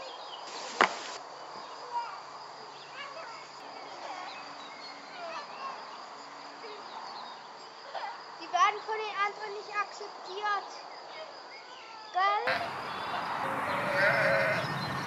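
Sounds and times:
insects chirring: 0.0 - 15.0
bird chirps: 12.5 - 15.0.

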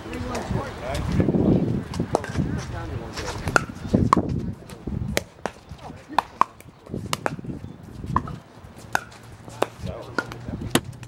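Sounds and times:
paddles hitting plastic ball: 3.5 - 7.5, 8.1 - 11.0.

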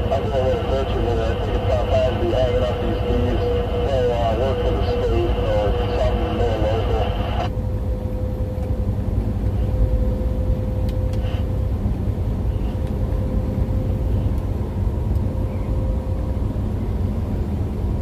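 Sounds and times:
thin steady hum: 0.0 - 18.0
truck engine and tyres rumbling: 0.0 - 18.0.

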